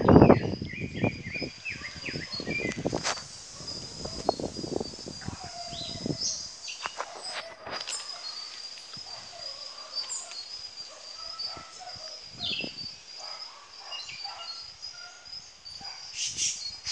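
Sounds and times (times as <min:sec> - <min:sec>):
high-pitched insect drone: 0:00.0 - 0:16.9
bird chirps and calls: 0:05.2 - 0:06.9, 0:09.3 - 0:15.2, 0:16.1 - 0:16.9.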